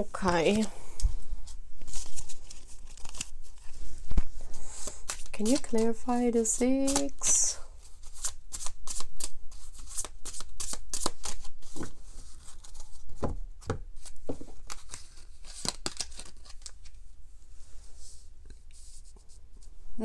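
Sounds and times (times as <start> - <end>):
cards being shuffled: 1.4 - 17.0.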